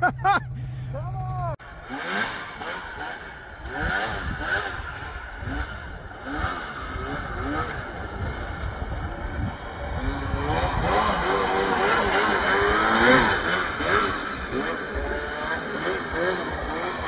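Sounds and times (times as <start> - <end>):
snowmobile engine revving: 0.0 - 17.0.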